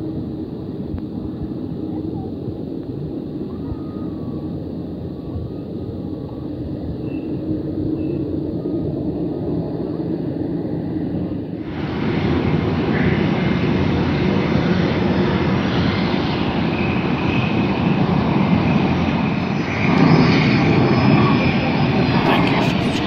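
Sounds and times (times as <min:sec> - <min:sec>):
aircraft engines rushing: 0:21.6 - 0:23.0.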